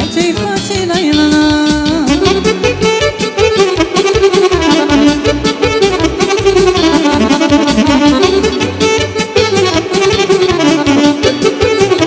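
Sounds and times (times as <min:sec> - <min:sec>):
live folk dance band music: 0:00.0 - 0:12.0.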